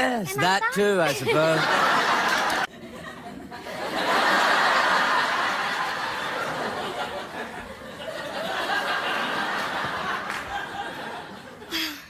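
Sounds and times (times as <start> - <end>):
studio audience laughing: 1.0 - 11.7.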